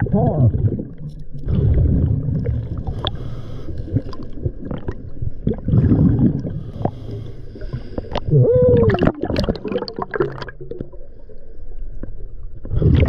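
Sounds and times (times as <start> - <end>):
regulator bubbles gurgling underwater: 0.0 - 13.0.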